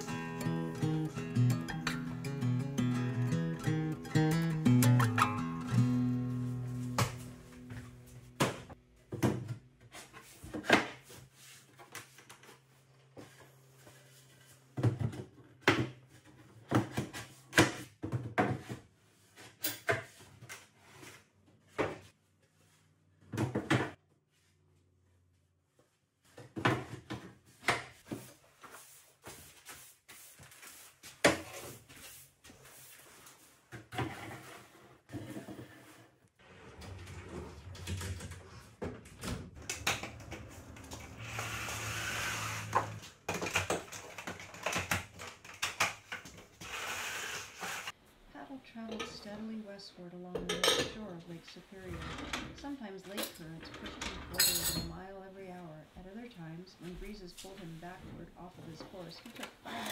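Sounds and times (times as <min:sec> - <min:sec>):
wooden drawers sliding: 0:35.2 - 0:43.3
closet doors opening and closing: 0:36.4 - 0:47.9, 0:51.7 - 0:55.0, 0:59.2 - 0:59.9.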